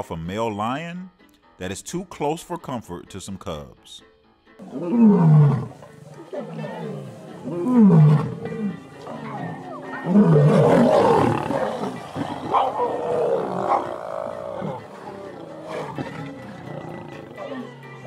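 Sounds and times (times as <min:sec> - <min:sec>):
lions snarling: 0:04.6 - 0:18.0.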